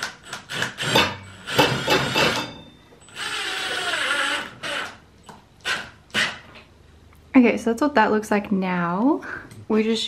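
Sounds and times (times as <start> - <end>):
cordless drill driving screws: 0.2 - 2.4, 3.1 - 5.0, 5.6 - 6.4.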